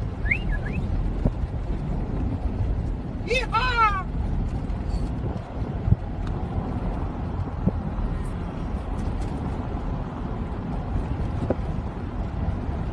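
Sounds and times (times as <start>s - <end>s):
vehicle rumbling while driving: 0.0s - 12.9s.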